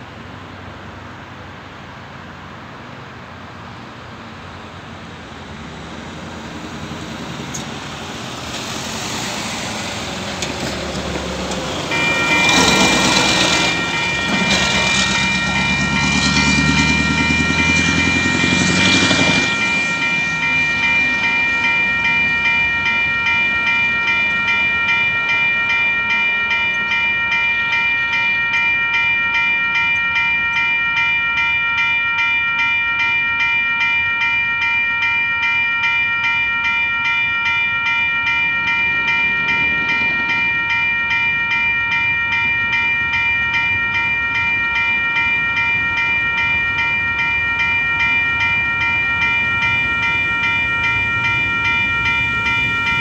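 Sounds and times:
level crossing warning bell: 0:00.0 - 0:53.0
truck passing by: 0:00.1 - 0:25.1.

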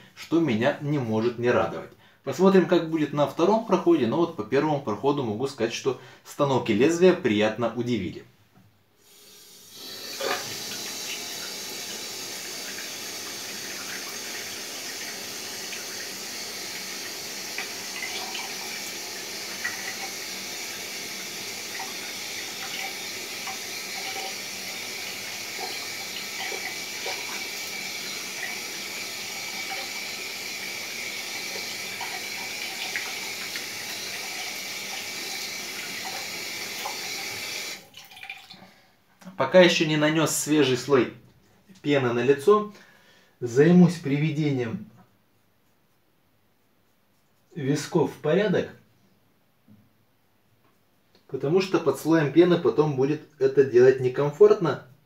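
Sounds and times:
sink tap running: 0:09.1 - 0:38.6
water splashing: 0:21.2 - 0:30.1, 0:31.1 - 0:38.6.

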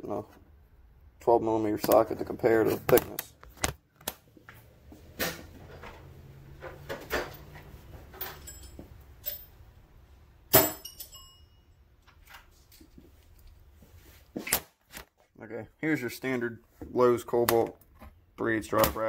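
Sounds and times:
metal hand tools clinking: 0:08.1 - 0:09.5, 0:10.6 - 0:11.6.

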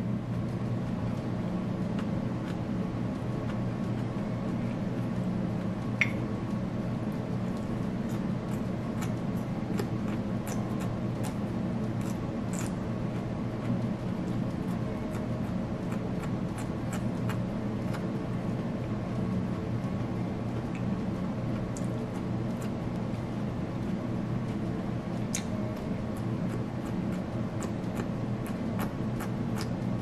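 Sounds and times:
person chewing asparagus: 0:07.5 - 0:11.4, 0:12.0 - 0:13.8, 0:26.4 - 0:29.8.

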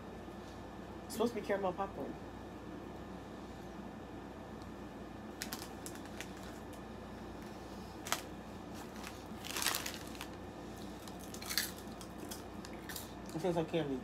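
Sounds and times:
plastic snack bag crinkling: 0:05.3 - 0:06.8, 0:08.0 - 0:13.4.

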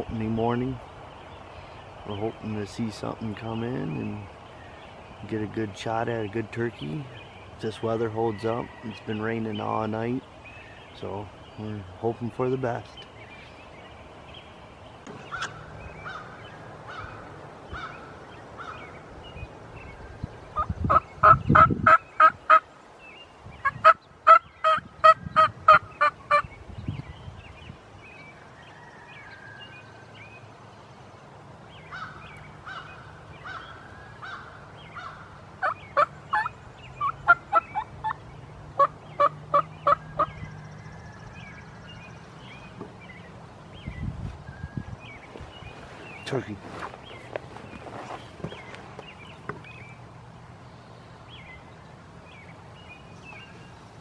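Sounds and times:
turkey yelping: 0:20.6 - 0:22.6, 0:23.6 - 0:26.4, 0:34.3 - 0:38.2, 0:38.8 - 0:40.4.

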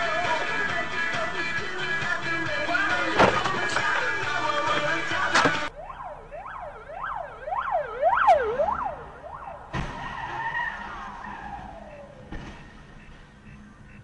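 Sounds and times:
ambulance siren wailing: 0:05.6 - 0:12.3.

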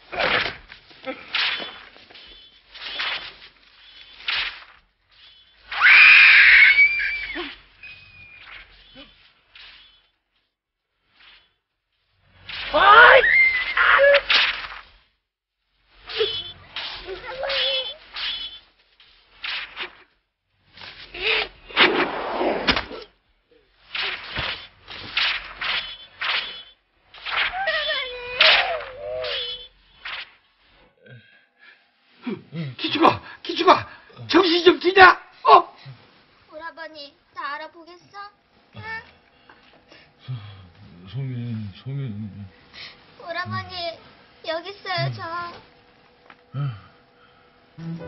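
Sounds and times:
sharp blows: 0:00.1 - 0:10.1, 0:16.0 - 0:18.7, 0:21.6 - 0:23.1, 0:23.8 - 0:30.4
girl screaming: 0:05.7 - 0:07.6, 0:12.7 - 0:14.3, 0:27.5 - 0:29.7.

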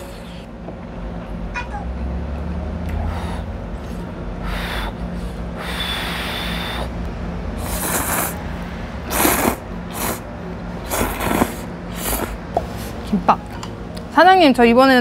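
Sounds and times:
person slurping noodles: 0:07.6 - 0:08.4, 0:09.1 - 0:10.2, 0:10.8 - 0:12.4.

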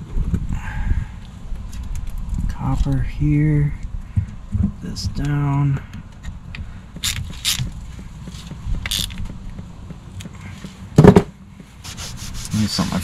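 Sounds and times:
ratchet wrench clicking: 0:07.0 - 0:07.7, 0:08.4 - 0:09.2.

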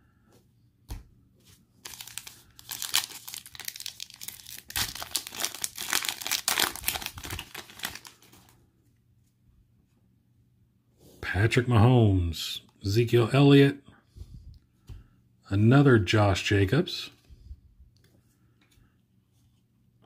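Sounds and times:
foil wrapper tearing and crinkling: 0:01.8 - 0:08.5.

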